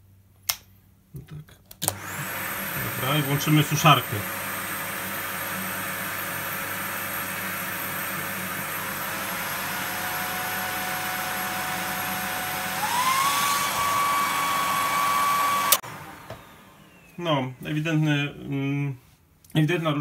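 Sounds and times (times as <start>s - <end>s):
hair dryer running: 1.8s - 17.8s
vacuum cleaner running: 1.8s - 18.3s
thin motor whine: 8.8s - 17.4s.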